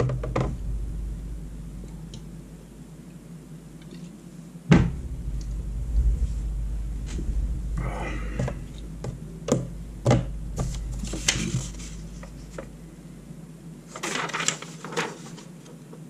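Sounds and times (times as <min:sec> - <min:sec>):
paper rustling: 0:13.9 - 0:15.8.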